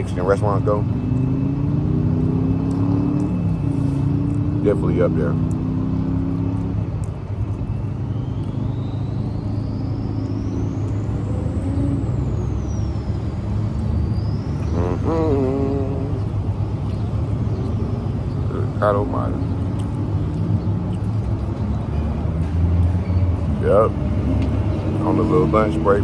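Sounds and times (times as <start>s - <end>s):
constant hum: 0.0s - 23.0s
road traffic rumble: 0.0s - 26.0s
short wavering vocal sound: 14.6s - 16.4s.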